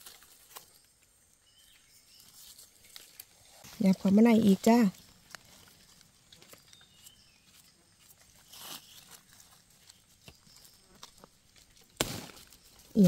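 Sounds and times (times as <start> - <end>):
leaf litter rustling: 0.0 - 13.0
knife scraping soil: 5.3 - 11.9.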